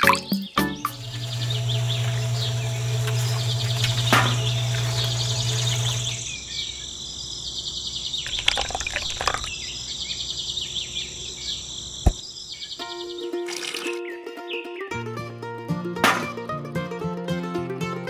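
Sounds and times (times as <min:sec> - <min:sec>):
birds chirping: 0:00.0 - 0:14.9
small electric motor humming: 0:00.9 - 0:06.4.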